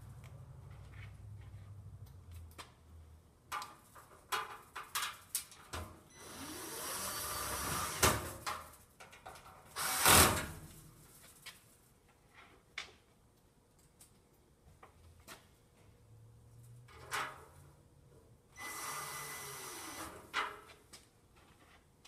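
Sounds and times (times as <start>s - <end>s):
cordless drill whining: 6.2s - 8.0s, 18.6s - 20.2s.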